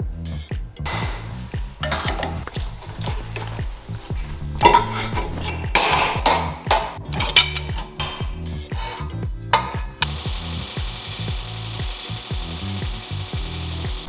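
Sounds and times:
background music with steady beat: 0.0s - 14.0s
sheet metal clanking and scraping: 0.9s - 10.0s.

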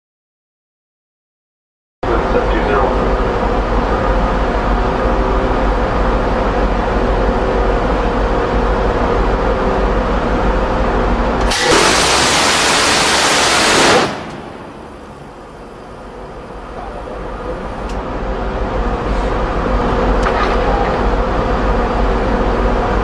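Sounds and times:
machinery hum: 2.0s - 23.0s
gatling cannon firing burst: 11.5s - 14.7s.

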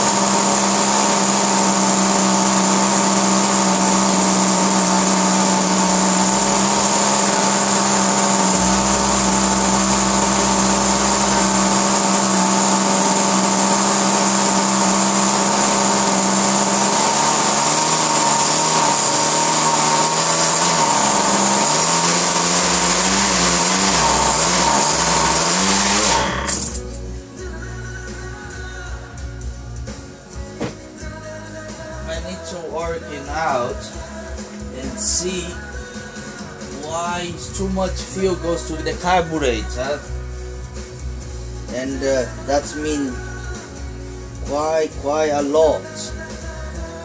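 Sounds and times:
model aircraft engine running: 0.0s - 26.8s.

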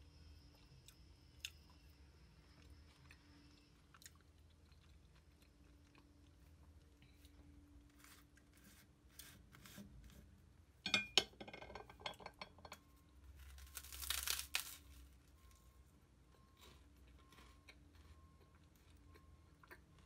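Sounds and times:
crisp crunch: 13.4s - 15.1s.

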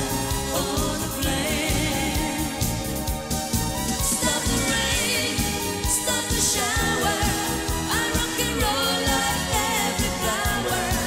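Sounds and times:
woman singing a pop song: 0.0s - 3.2s, 3.9s - 11.0s
band with steady drum beat: 0.0s - 11.0s.

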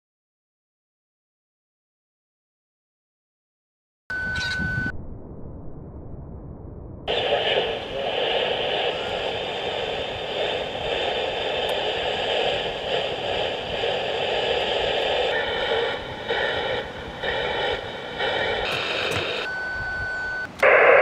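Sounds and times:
steady whistling tone: 4.1s - 5.0s, 7.1s - 21.0s
radio static hiss: 7.1s - 19.5s, 20.4s - 21.0s
choppy radio signal: 7.1s - 21.0s.

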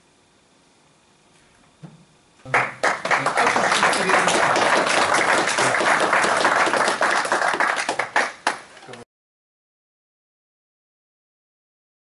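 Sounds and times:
audience applauding: 2.5s - 9.0s.

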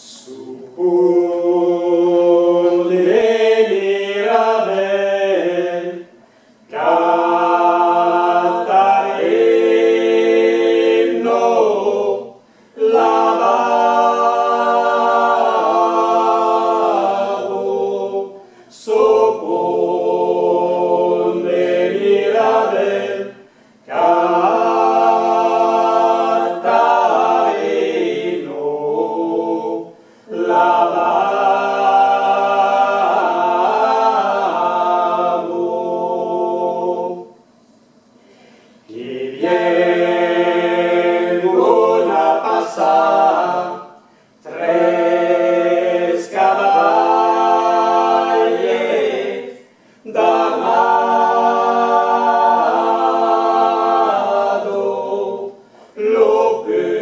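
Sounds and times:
vocal quartet singing a cappella: 0.0s - 57.0s
singers breathing: 6.1s - 6.7s, 12.4s - 12.8s, 18.4s - 18.8s, 23.4s - 23.9s, 29.9s - 30.3s, 38.1s - 38.9s, 44.0s - 44.4s, 49.6s - 50.1s, 55.6s - 56.0s.

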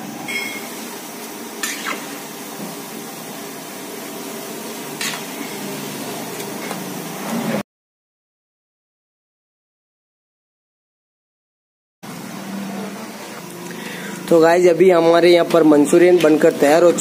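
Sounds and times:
oil sizzling deep-frying: 0.0s - 7.6s, 12.0s - 17.0s.

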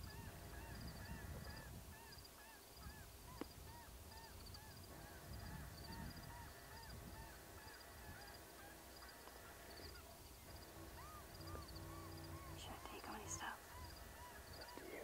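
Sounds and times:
low wind rumble: 0.0s - 15.0s
geese honking: 4.9s - 14.9s.

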